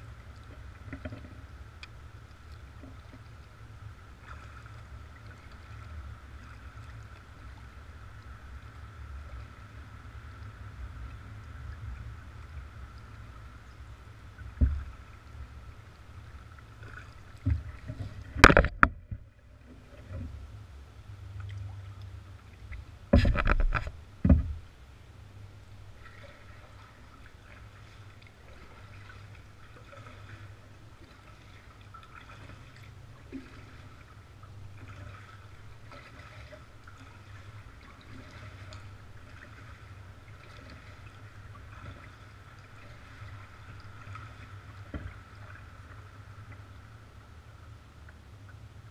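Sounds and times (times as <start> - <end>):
water rumbling around kayak hull: 0.0 - 48.9
paddle knocking plastic hull: 14.4 - 15.0, 17.4 - 19.3, 23.1 - 24.6.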